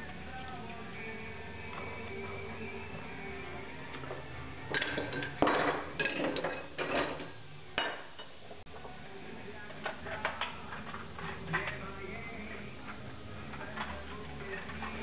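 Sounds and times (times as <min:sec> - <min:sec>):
metal tools clattering on wood: 0:04.7 - 0:08.3.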